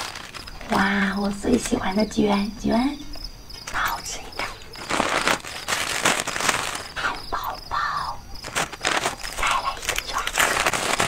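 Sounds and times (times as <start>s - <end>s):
paper wrappers rustling: 0.0s - 2.0s, 3.6s - 7.5s, 8.3s - 11.0s.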